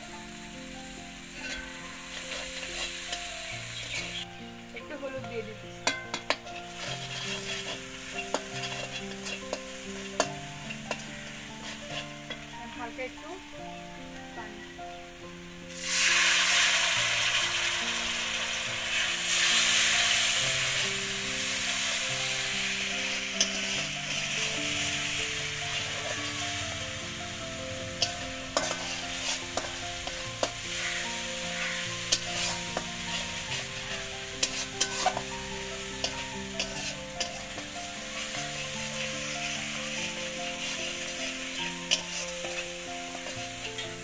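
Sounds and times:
paste sizzling in oil: 0.0s - 13.5s, 15.2s - 44.0s
metal spatula scraping pan: 1.3s - 4.2s, 5.8s - 12.5s, 22.4s - 27.3s, 27.9s - 43.8s.

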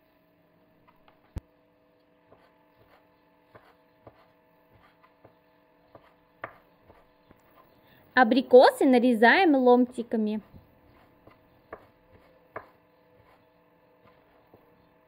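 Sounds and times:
low steady hum: 0.0s - 15.0s
knife tapping wooden board: 11.2s - 13.4s.

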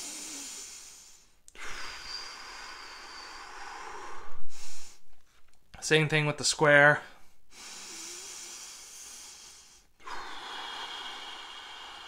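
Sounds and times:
man breathing deeply: 0.0s - 5.3s, 7.2s - 12.0s
faint whistle in breath: 1.8s - 4.8s.

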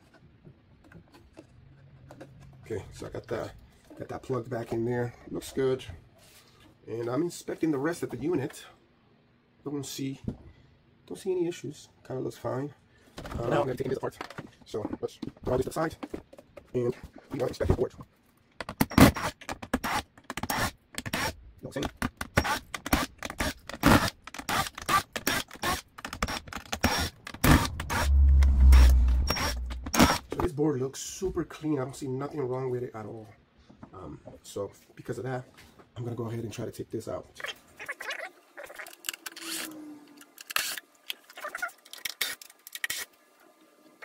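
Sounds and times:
falling hum: 26.9s - 30.3s.

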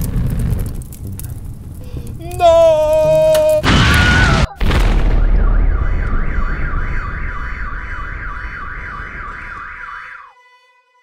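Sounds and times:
explosion blasts: 3.0s - 9.8s
electronic alarm wailing: 5.2s - 10.4s.

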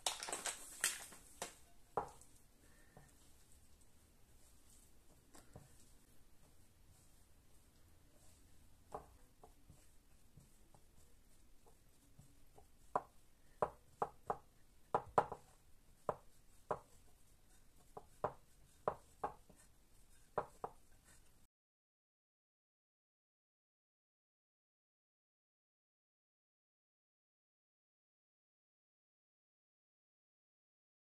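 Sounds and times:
dough knocking against ceramic bowl: 12.5s - 17.0s, 17.9s - 19.6s, 20.3s - 20.8s.

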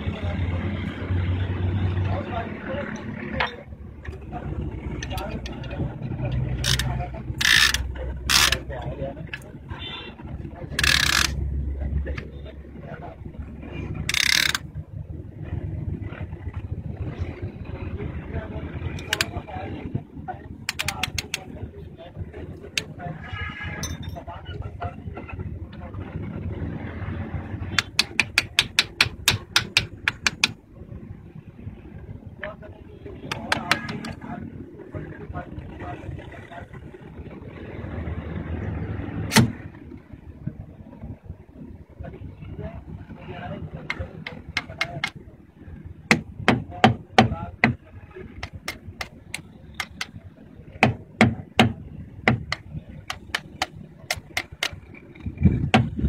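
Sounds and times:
quick sharp metallic taps: 27.8s - 30.6s, 43.9s - 45.2s, 48.4s - 50.2s, 50.8s - 54.8s.

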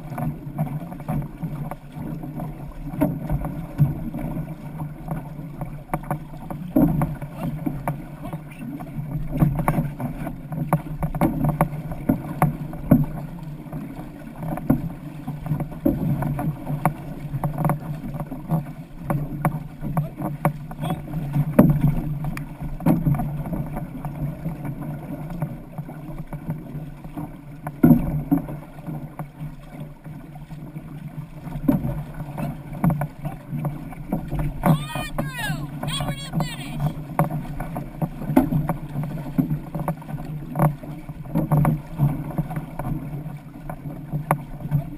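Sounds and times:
paddle splashes: 0.0s - 44.9s
water rushing along hull: 0.0s - 44.9s.

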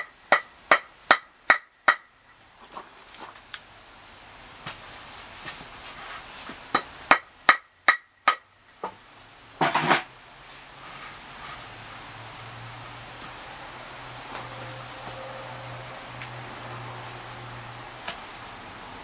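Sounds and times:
hammer striking wood: 0.0s - 2.1s, 6.7s - 9.0s
rough scraping: 9.6s - 12.1s.

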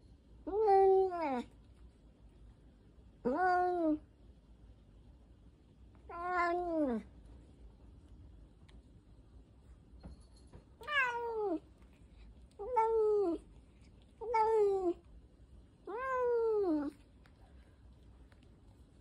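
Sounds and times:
cat meowing: 6.1s - 7.1s, 10.8s - 11.6s, 12.6s - 13.4s, 14.2s - 15.0s, 15.8s - 17.0s.

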